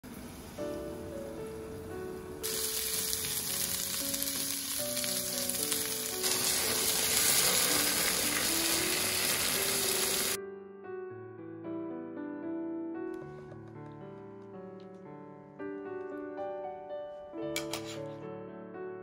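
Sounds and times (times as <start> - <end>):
background music: 0.6 - 19.0
food sizzling in frying pan: 2.4 - 10.4.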